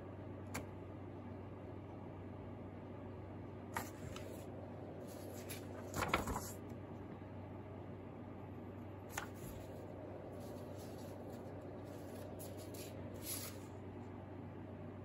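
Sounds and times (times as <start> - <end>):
low steady hum: 0.0 - 15.0
light paper flick: 3.8 - 4.4, 5.0 - 6.6, 9.1 - 9.8, 10.4 - 13.7
paper rustle: 3.8 - 6.6, 9.1 - 13.7.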